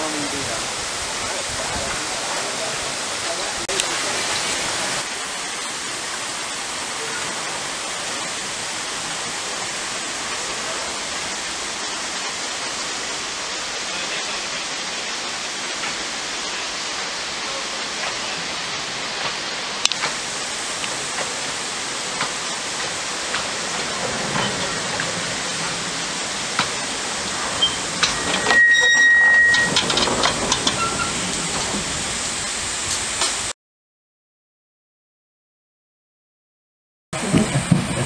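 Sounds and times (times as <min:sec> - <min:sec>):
running water rushing: 0:00.0 - 0:33.5
train clicking and knocking on track: 0:15.6 - 0:33.5, 0:37.2 - 0:38.0.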